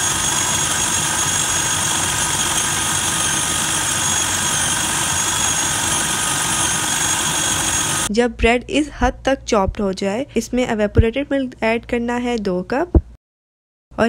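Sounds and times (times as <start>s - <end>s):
food processor chopping bread: 0.0s - 8.1s.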